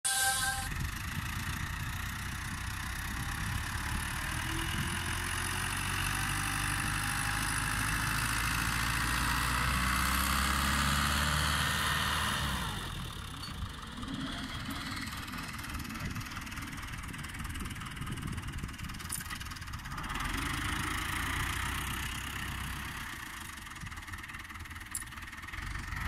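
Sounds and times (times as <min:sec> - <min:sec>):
tractor diesel engine under load: 0:00.1 - 0:26.0.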